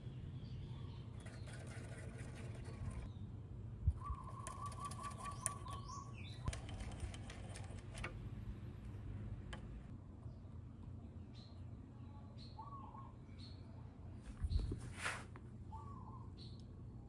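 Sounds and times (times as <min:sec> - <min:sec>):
low background noise: 0:00.0 - 0:17.0
birds calling: 0:03.9 - 0:07.7.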